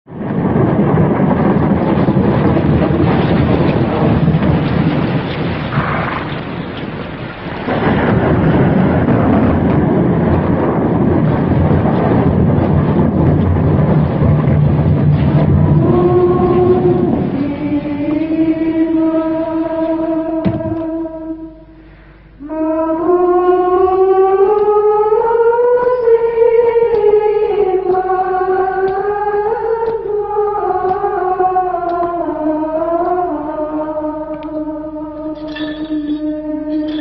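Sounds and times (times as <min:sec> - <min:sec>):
heavy rain: 0:00.1 - 0:23.1
rolling thunder: 0:00.1 - 0:35.4.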